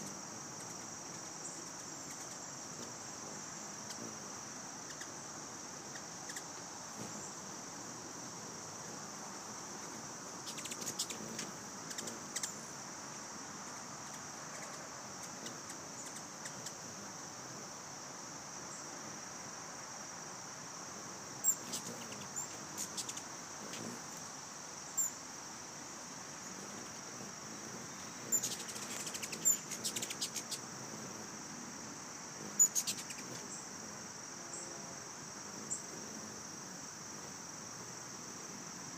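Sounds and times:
high insect drone: 0.0 - 38.9
hummingbird chip calls: 5.9 - 7.2, 9.8 - 12.7, 21.4 - 24.1, 26.5 - 31.0, 32.4 - 33.6.

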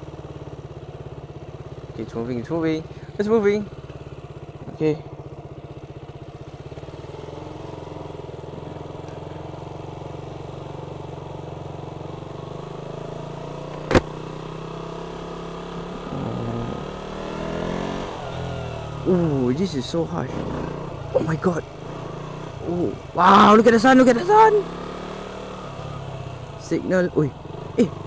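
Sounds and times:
motorcycle engine running: 0.0 - 28.0
sharp click: 13.7 - 14.1.

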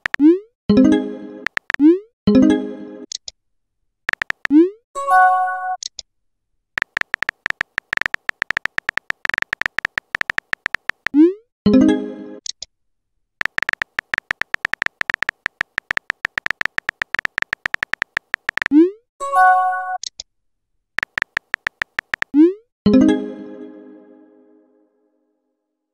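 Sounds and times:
synthetic keyboard tapping clicks: 0.0 - 0.4, 1.4 - 2.0, 4.1 - 4.8, 6.8 - 11.4, 13.4 - 18.9, 21.0 - 22.6.

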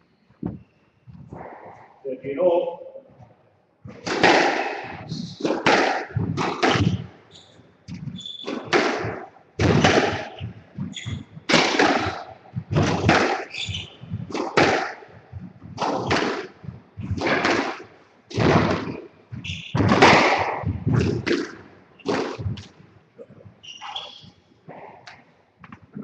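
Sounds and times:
squash ball cracking off walls: 3.9 - 7.2, 7.9 - 22.8
shoe squeaks: 6.4 - 8.7, 10.1 - 11.5, 13.3 - 14.4, 19.4 - 20.1, 23.6 - 24.5.

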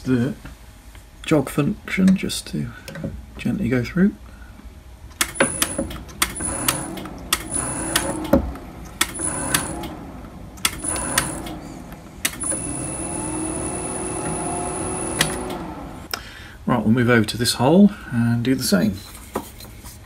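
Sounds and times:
sharp clicks: 5.1 - 10.0, 10.6 - 11.6, 12.2 - 12.6, 15.2 - 16.2
mill drilling through metal: 5.2 - 16.1
high whine of axis moving: 5.3 - 16.1.

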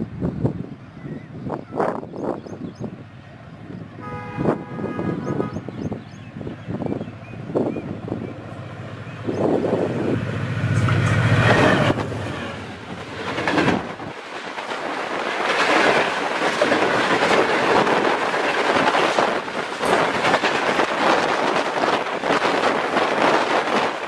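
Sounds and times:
train wheels clattering over rail joints: 10.6 - 24.0.

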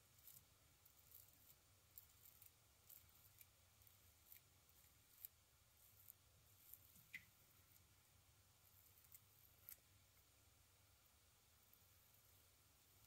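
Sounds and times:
razor scraping stubble: 0.0 - 7.2.

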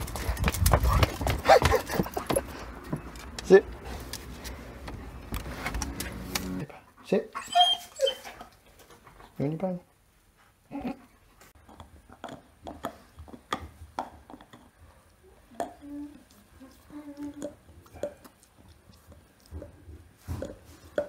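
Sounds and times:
dog gnawing a bone: 11.6 - 21.0.

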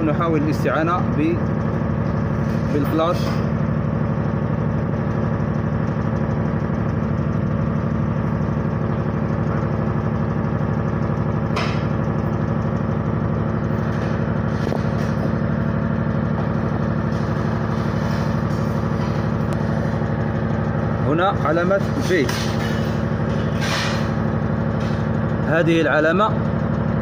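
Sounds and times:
engine idling: 0.0 - 27.0.

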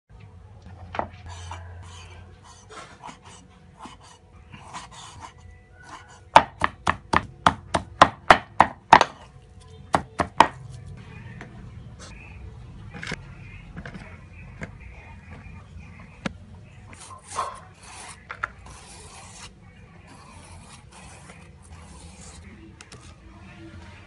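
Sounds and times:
knife chopping on wooden board: 6.3 - 9.3.

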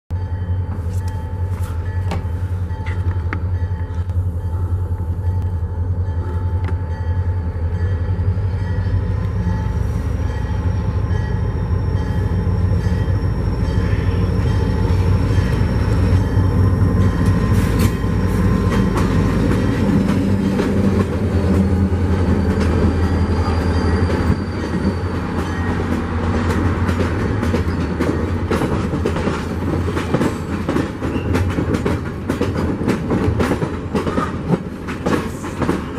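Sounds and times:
locomotive engine drone: 0.1 - 35.9
train wheels clacking over rail joints: 17.0 - 35.9.

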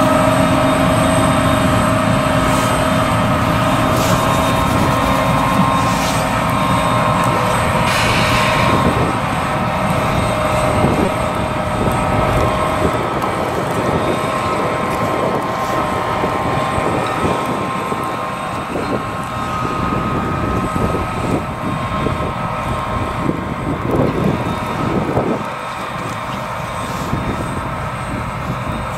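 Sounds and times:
diesel engine drone: 0.0 - 28.9
machine whining tones: 0.0 - 28.9.

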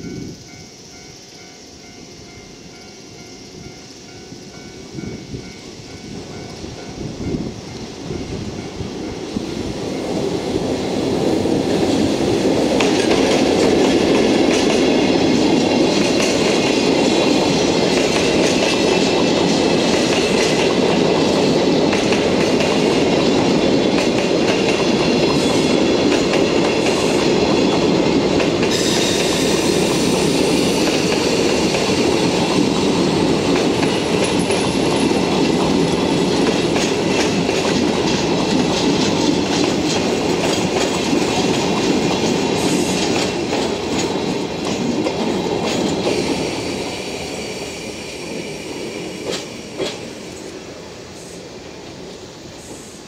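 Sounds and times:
freight train wheels rumbling: 0.0 - 53.0
high hiss: 0.0 - 53.0
wheels clacking over rail joints: 9.0 - 46.7.

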